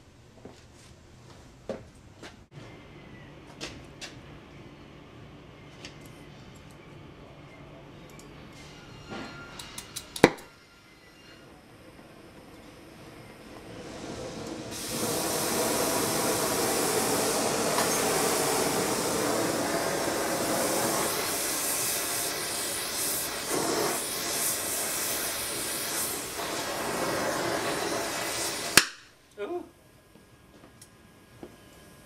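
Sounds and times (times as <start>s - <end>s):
gas torch flame hissing: 9.6s - 29.2s.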